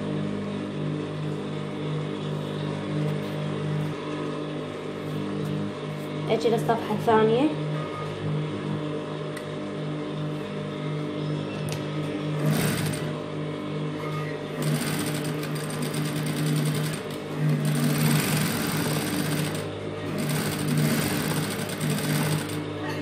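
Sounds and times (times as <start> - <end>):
sewing machine stitching: 12.4 - 13.2, 14.6 - 22.6.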